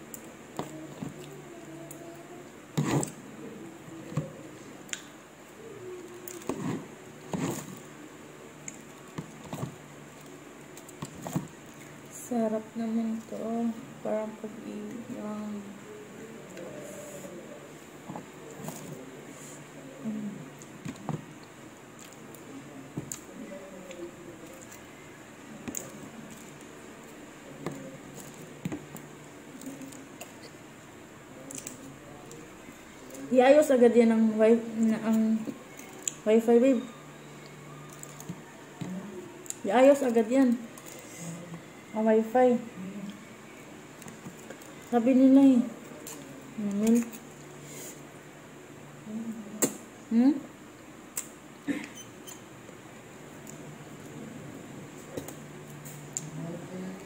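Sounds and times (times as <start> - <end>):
soft chewing: 0.0 - 12.2, 16.2 - 33.3, 36.9 - 41.9, 42.8 - 45.1, 45.8 - 48.2.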